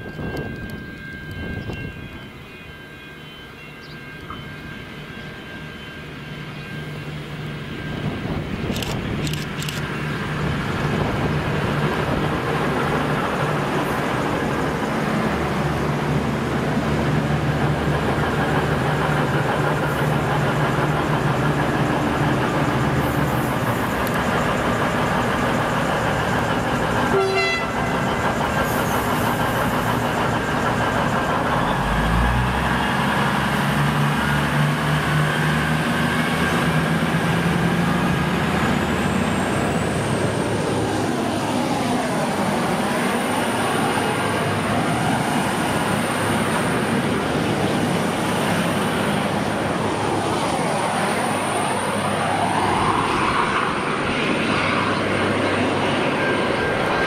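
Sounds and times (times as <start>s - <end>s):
diesel train engines: 0.0s - 57.0s
train wheels rolling: 7.5s - 41.0s.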